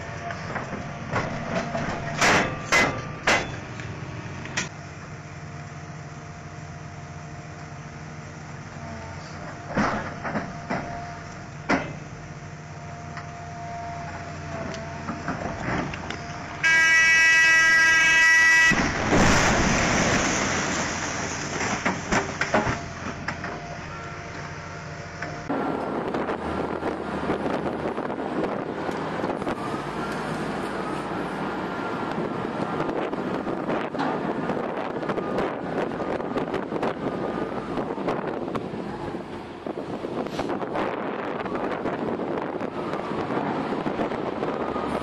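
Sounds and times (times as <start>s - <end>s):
heavy machinery engine running: 0.0s - 16.7s, 18.0s - 45.0s
loud steady horn: 16.6s - 19.0s
rock blast rumbling: 18.7s - 22.7s
wind noise: 25.5s - 45.0s.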